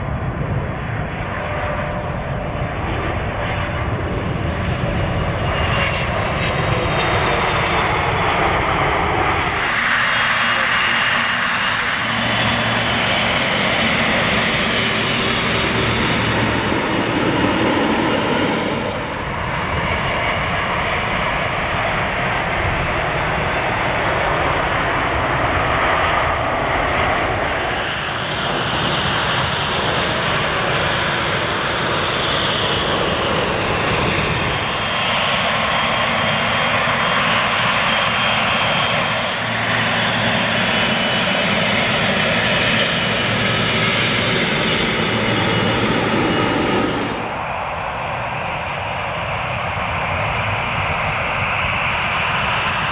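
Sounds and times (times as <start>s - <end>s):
airliner touching down: 0.0s - 52.9s
jet engines running: 0.0s - 52.9s.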